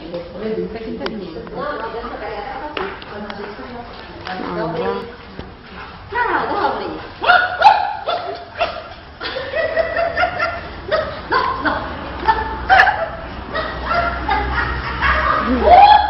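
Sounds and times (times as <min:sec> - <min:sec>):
people laughing: 0:07.2 - 0:16.0.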